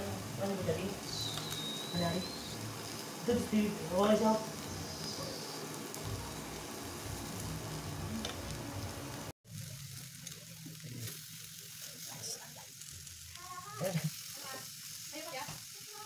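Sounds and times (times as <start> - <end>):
meat skewers sizzling on grill pan: 0.0 - 16.0.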